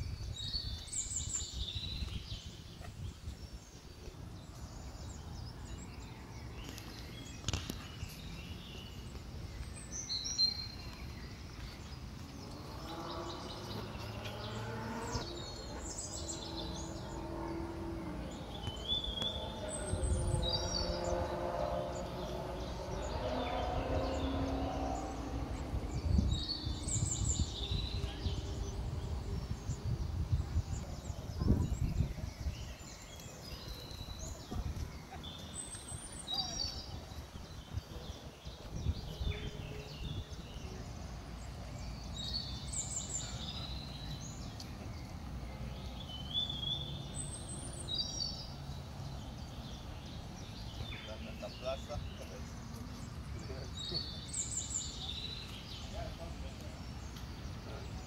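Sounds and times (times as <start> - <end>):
outdoor background noise: 0.0 - 58.0
songbird singing: 0.0 - 58.0
low rumble: 12.1 - 33.3.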